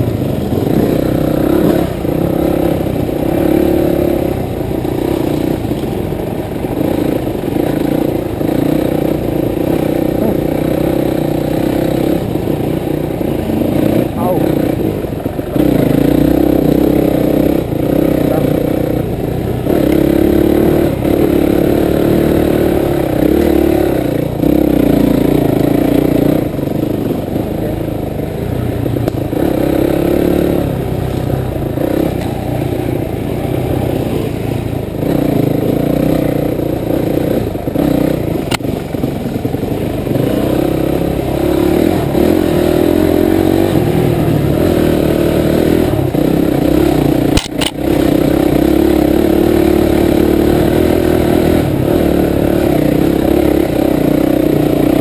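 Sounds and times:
dirt bike engine revving: 0:00.0 - 0:55.0.

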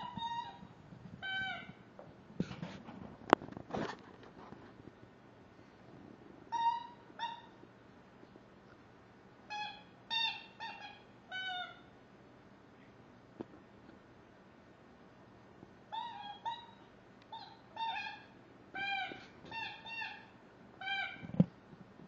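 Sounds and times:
squeaky chew toy squeaking: 0:00.0 - 0:01.7, 0:18.8 - 0:21.2.

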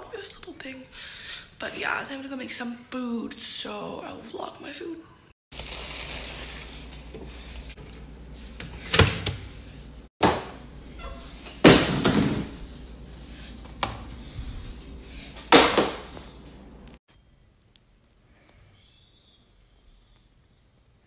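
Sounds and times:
kitchen knocks and bangs: 0:10.2 - 0:10.6, 0:11.6 - 0:12.6, 0:15.5 - 0:16.2.

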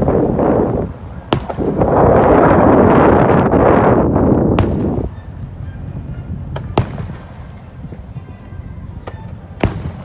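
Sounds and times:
loud steady noise: 0:00.0 - 0:10.0
fireworks bursting: 0:01.2 - 0:03.3, 0:03.9 - 0:05.2, 0:06.4 - 0:10.0.

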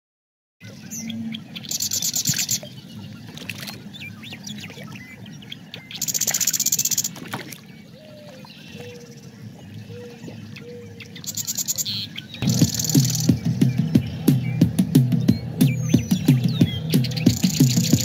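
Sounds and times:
short animal chirps: 0:11.2 - 0:13.4
high-pitched pulsing trill: 0:12.4 - 0:18.0.

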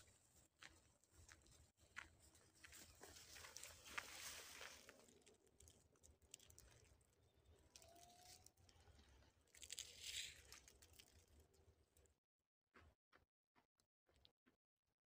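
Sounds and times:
dry grass rustling: 0:02.4 - 0:05.6
faint crackles: 0:02.6 - 0:11.6.

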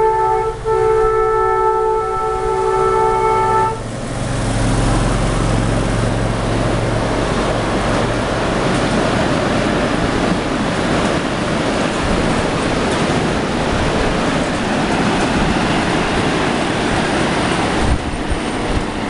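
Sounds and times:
multi-tone horn chord: 0:00.0 - 0:03.9
miniature train rumbling on track: 0:00.0 - 0:19.0.

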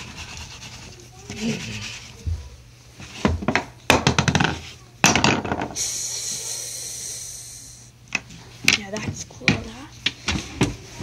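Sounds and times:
steady hiss: 0:05.8 - 0:08.0.

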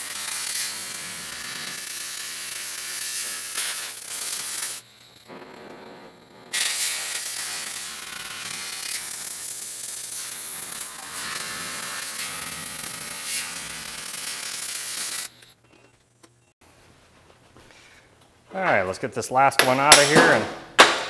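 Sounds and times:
cutting torch hissing: 0:00.0 - 0:05.4, 0:06.5 - 0:15.4.

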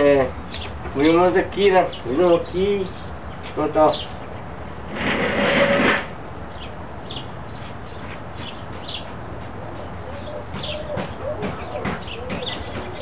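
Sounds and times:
small birds chirping: 0:00.2 - 0:04.5, 0:06.5 - 0:13.0
loud noisy burst: 0:04.9 - 0:06.2.

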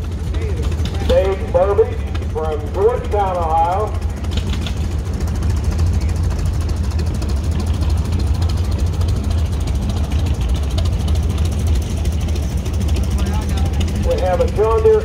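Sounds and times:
tractor engine rumbling: 0:00.0 - 0:15.0.

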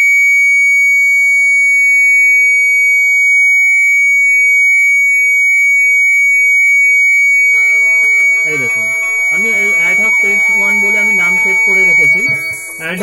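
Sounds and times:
security alarm high-pitched tone: 0:00.0 - 0:13.0.

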